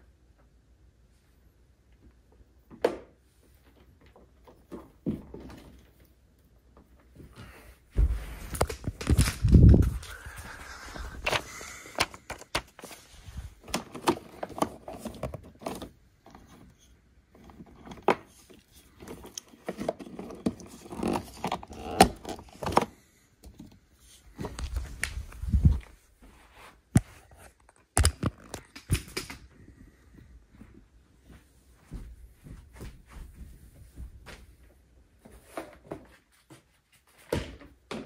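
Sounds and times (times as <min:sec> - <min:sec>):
plastic parts clicking and knocking: 0:11.2 - 0:13.0, 0:13.6 - 0:23.8, 0:27.5 - 0:29.5.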